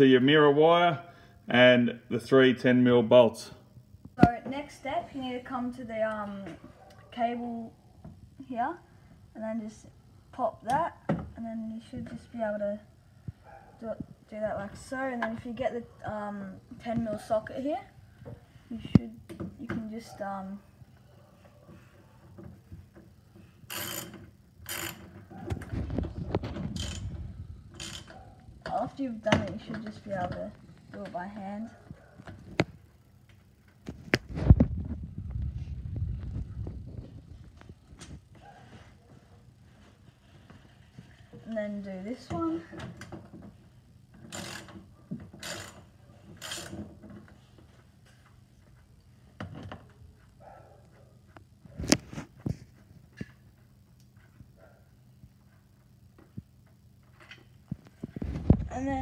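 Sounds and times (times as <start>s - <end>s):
ratchet wrench clicking: 23.7s - 25.0s, 44.3s - 44.8s, 45.4s - 46.8s.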